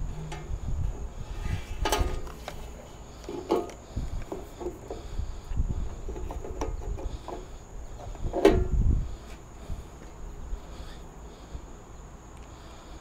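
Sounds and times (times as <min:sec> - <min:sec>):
loud metal clank: 0:00.0 - 0:02.3
insects chirping: 0:00.0 - 0:13.0.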